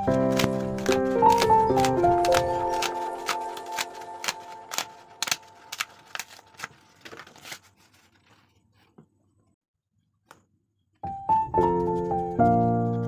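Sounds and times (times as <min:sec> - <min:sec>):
background music with clicking beat: 0:00.0 - 0:05.4, 0:11.0 - 0:13.0.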